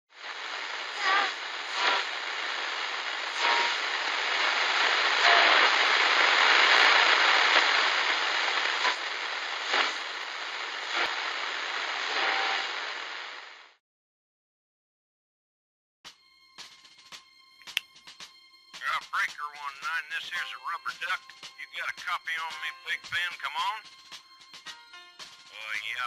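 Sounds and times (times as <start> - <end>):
steady rushing hiss: 0.1 - 13.8, 18.8 - 26.0.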